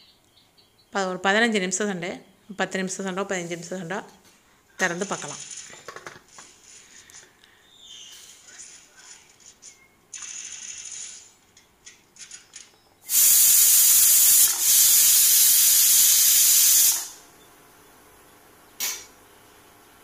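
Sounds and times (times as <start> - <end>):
pressure cooker steam whistling: 13.1 - 17.2.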